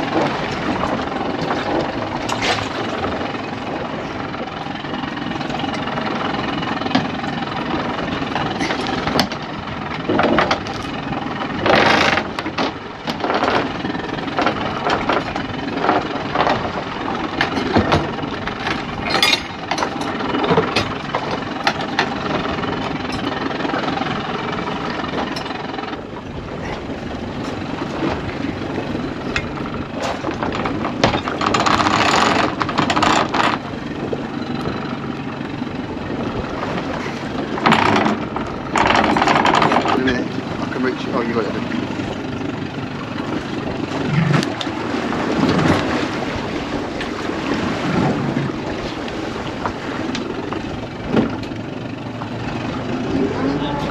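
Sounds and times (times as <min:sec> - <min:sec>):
boat engine running: 0:00.0 - 0:53.9
knocks and clatters: 0:29.4 - 0:33.7, 0:37.6 - 0:40.4.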